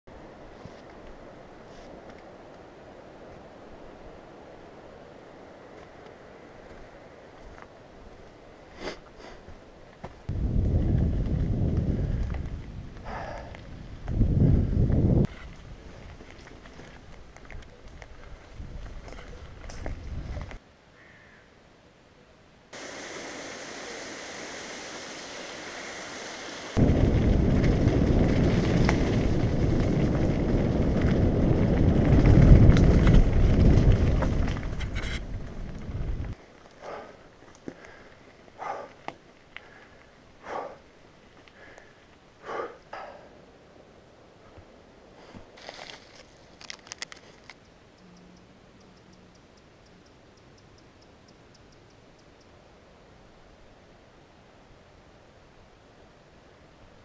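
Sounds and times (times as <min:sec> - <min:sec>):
tyre rumble on dirt track: 0:09.5 - 0:20.6, 0:26.8 - 0:40.1, 0:45.3 - 0:47.5
gravel or bike rattle clicks: 0:09.9 - 0:20.6, 0:26.8 - 0:43.2, 0:45.5 - 0:49.4
wind buffeting microphone: 0:10.3 - 0:20.6, 0:26.8 - 0:36.4
plastic wrapper crinkling: 0:45.6 - 0:47.6
faint high ticking: 0:47.5 - 0:52.6.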